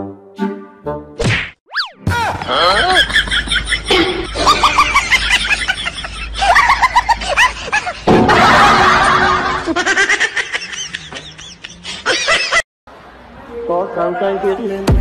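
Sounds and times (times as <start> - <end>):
person snickering: 2.5 - 8.1.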